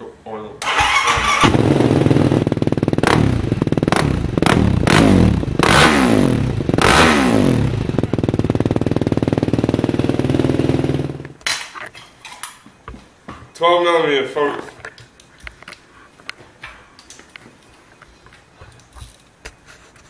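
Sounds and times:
engine revving and idling: 0.7 - 11.3.

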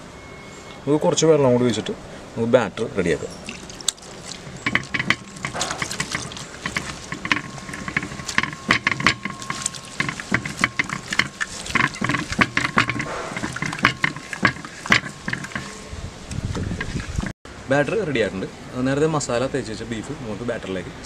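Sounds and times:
batter mixed in metal bowl: 3.4 - 15.9, 16.6 - 17.3.

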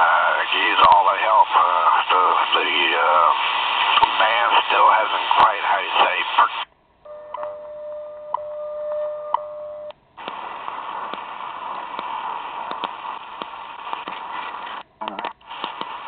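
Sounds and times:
radio static hiss and crackling: 0.0 - 6.7, 10.2 - 16.0
time signal tone with ticks: 7.1 - 10.0.

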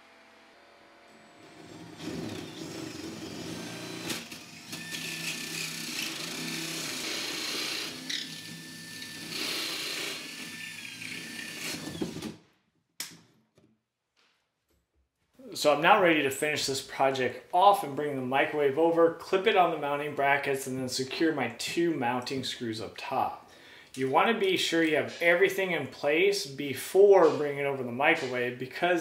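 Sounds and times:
power drill cutting wood: 0.0 - 12.4.

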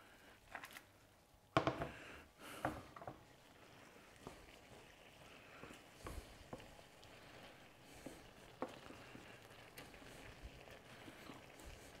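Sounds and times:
food squishing in a pan: 3.2 - 12.0.

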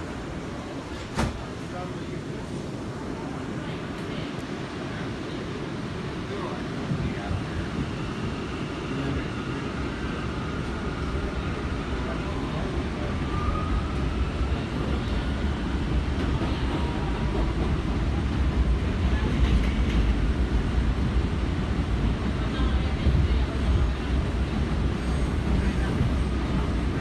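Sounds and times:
subway wheels rumbling on track: 0.0 - 27.0.

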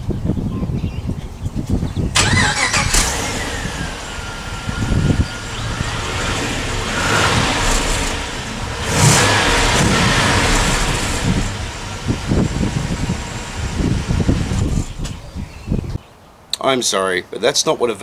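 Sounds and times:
car engine revving: 2.2 - 15.2.

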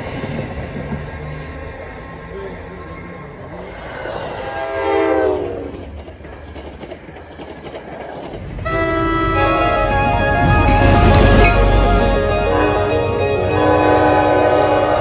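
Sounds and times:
train wheels rumbling and clattering: 0.0 - 15.0
train horn: 4.4 - 5.8, 8.6 - 15.0.

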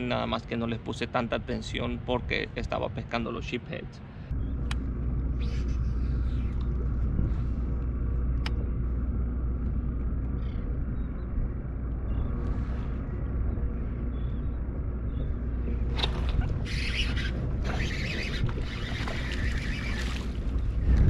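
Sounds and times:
low rumble: 3.9 - 21.0.

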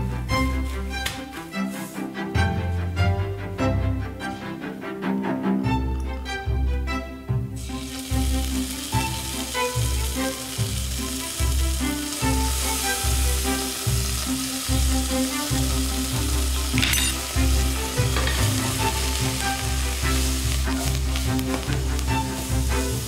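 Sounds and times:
background music with a beat: 0.0 - 23.0
food sizzling in oil: 7.6 - 23.0.

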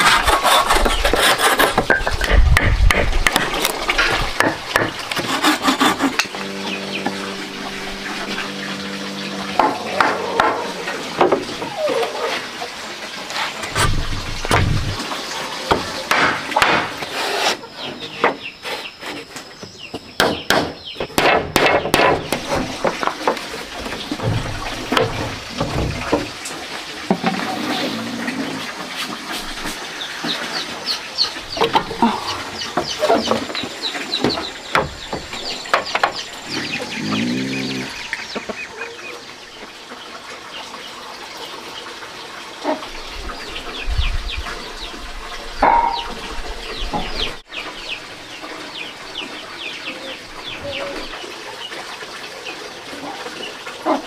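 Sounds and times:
chickens clucking: 0.0 - 16.8, 27.1 - 40.8, 45.6 - 48.5
knocks and clatter: 13.7 - 15.1.

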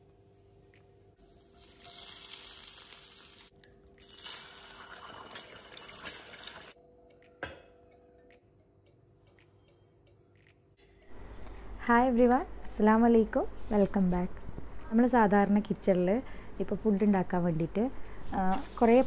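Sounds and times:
egg sizzling in hot oil: 1.2 - 6.8.

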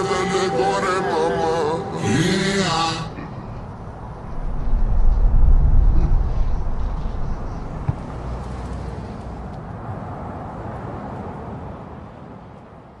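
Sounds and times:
low rumbling noise: 0.0 - 9.4.

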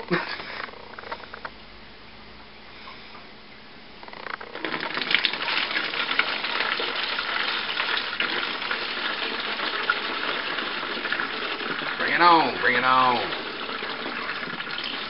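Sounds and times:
liquid pouring through funnel: 4.1 - 15.0.

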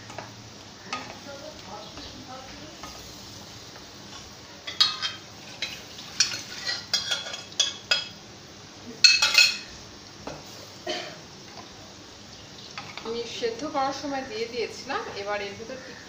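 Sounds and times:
metal pans clinking and scraping: 4.7 - 8.1, 9.0 - 9.7.

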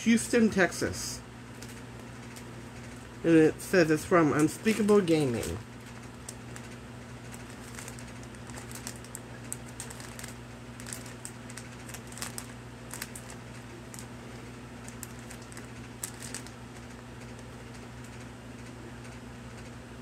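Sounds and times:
steady low hum: 0.0 - 20.0
plastic bag crinkling: 4.5 - 17.8.

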